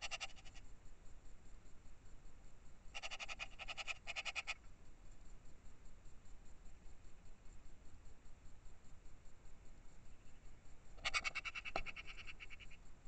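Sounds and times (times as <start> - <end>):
magpie chattering: 0.0 - 0.6, 3.0 - 4.6, 11.0 - 12.8.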